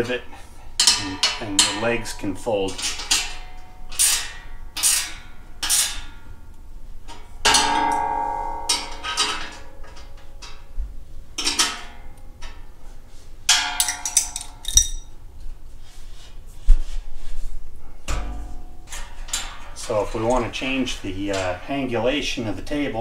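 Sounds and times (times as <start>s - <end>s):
metal clanking on welding table: 13.5s - 15.1s.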